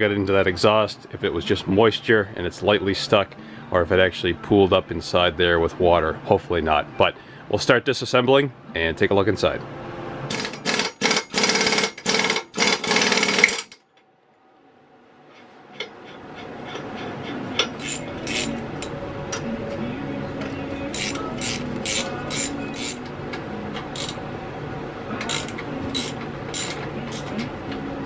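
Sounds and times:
impact wrench running: 10.3 - 13.8, 17.6 - 18.9, 20.9 - 23.1, 23.9 - 24.2, 25.2 - 27.3.

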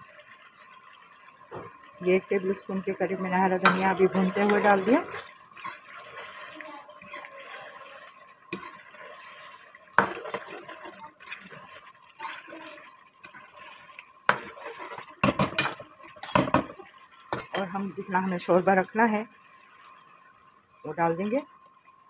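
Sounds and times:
ladle stirring in metal pot: 0.0 - 20.4
ladle clanking on pot: 14.3 - 17.7.

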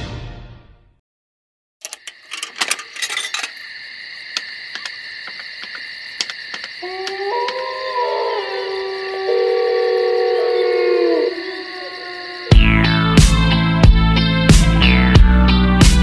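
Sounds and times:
fanfare music: 0.0 - 0.8, 12.6 - 16.0.

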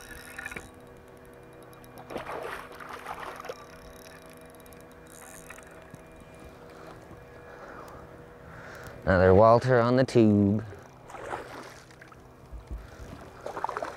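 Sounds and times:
steady hum: 0.0 - 13.9
fish thrashing water splashing: 2.1 - 3.6, 11.0 - 12.2, 13.4 - 13.9.

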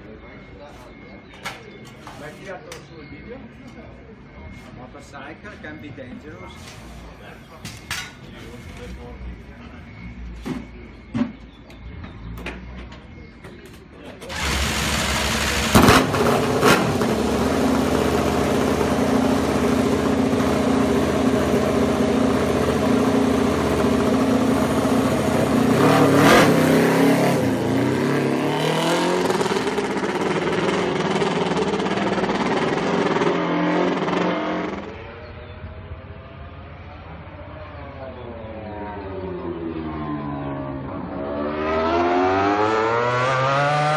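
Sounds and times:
racing motorcycle engine idling: 14.3 - 33.3.

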